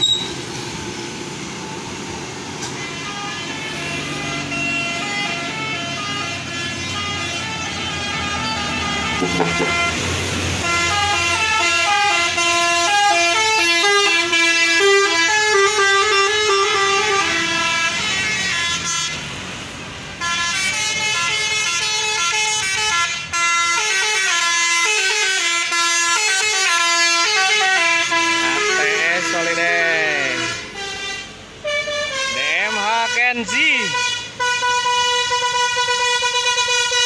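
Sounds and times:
multi-tone bus horn tune: 0:02.4 - 0:37.0.

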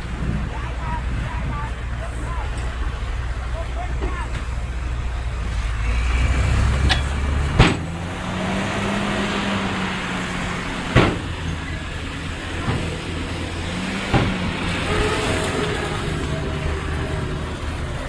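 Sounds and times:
diesel machinery engine running: 0:00.0 - 0:18.0
sharp bangs: 0:10.6 - 0:11.6.

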